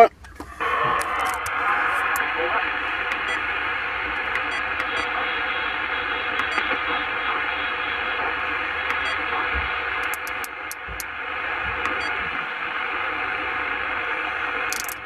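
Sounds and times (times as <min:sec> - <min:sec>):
light clicks of radio tuning: 0:00.0 - 0:15.0
radio static hiss: 0:00.0 - 0:15.0.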